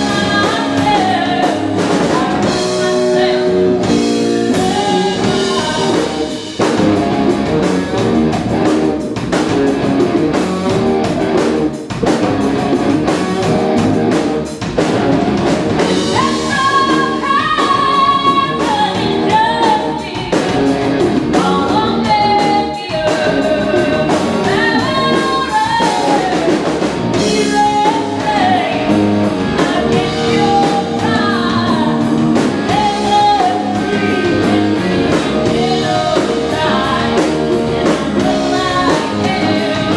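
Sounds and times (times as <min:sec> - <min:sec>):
woman singing lead: 0:00.0 - 0:06.8, 0:15.9 - 0:39.9
drum kit: 0:00.0 - 0:39.9
electric guitars: 0:00.0 - 0:39.9.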